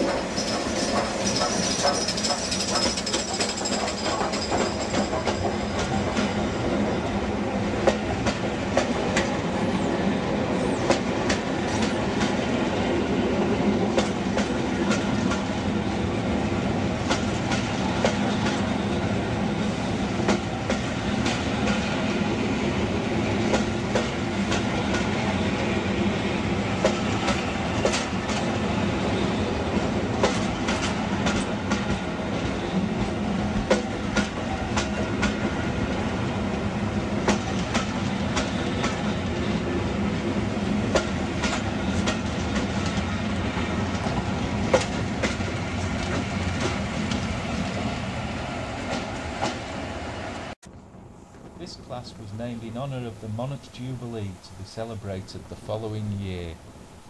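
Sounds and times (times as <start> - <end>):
metallic clacks of wheels: 0.0 - 6.4
train wheels rumbling on rail: 0.0 - 57.0.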